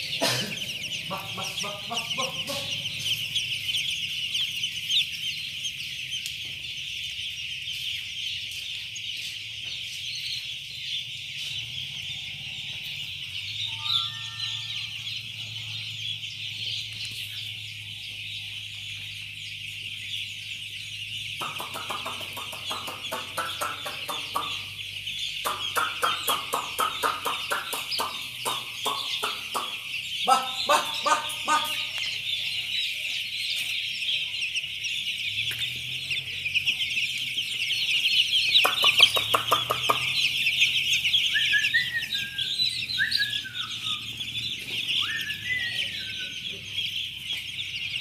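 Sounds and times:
chicks peeping: 0:00.0 - 0:48.0
short falling calls: 0:13.6 - 0:15.4, 0:21.4 - 0:32.3.

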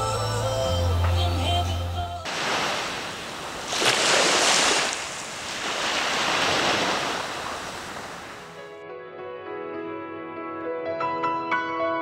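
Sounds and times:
small waves breaking on beach: 0:02.3 - 0:08.6.

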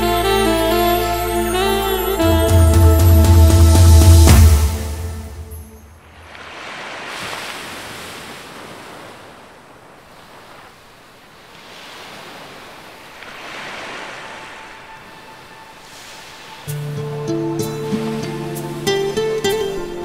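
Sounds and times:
waves breaking on beach: 0:04.8 - 0:20.0.

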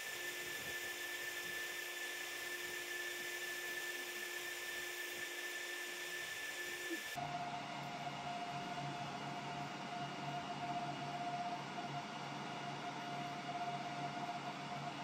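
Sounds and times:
laser engraver hissing and whining: 0:00.0 - 0:07.3.

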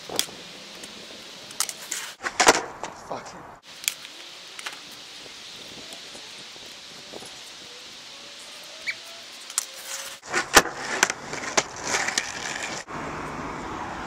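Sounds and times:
skateboard rolling on rough tarmac: 0:00.0 - 0:14.0
skateboard clacking on ground: 0:00.1 - 0:03.1, 0:10.3 - 0:12.9.

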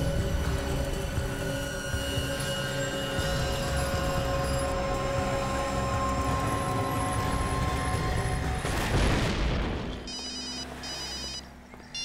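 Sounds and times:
tense background music: 0:00.0 - 0:12.0
electronic phone ringtone beeping: 0:10.1 - 0:12.0.

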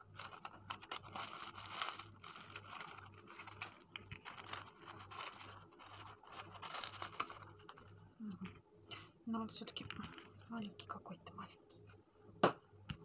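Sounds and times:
tissue paper rustling: 0:00.2 - 0:07.8.

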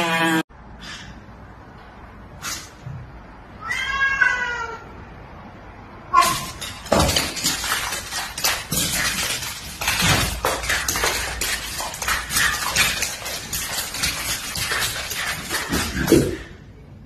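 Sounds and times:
cat meowing: 0:03.6 - 0:04.9
cat and dog scuffling: 0:06.2 - 0:16.5.

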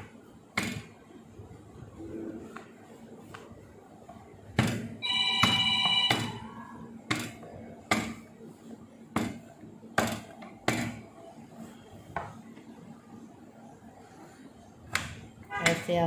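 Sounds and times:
steady high tone: 0:05.0 - 0:06.8.

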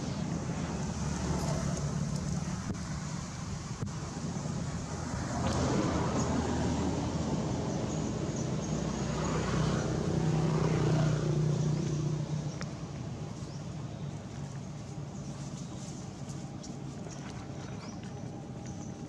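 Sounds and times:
passing motor engine hum: 0:00.0 - 0:19.0.

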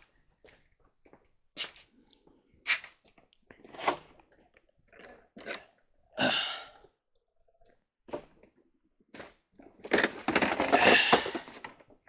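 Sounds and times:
objects scraping and clattering: 0:09.2 - 0:12.0.

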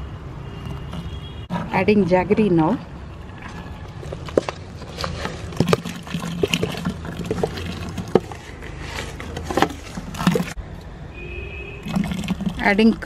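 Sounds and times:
liquid pouring and splashing: 0:03.1 - 0:10.6, 0:11.8 - 0:13.0.

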